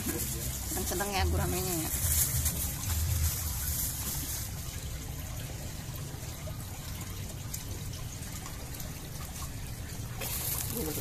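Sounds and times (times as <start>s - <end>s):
trickling water: 0.0s - 11.0s.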